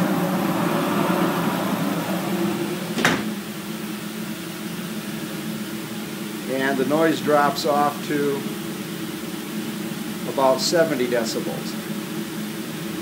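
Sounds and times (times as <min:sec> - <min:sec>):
dust collector running: 0:00.0 - 0:13.0
door shutting with a thud: 0:02.9 - 0:03.4.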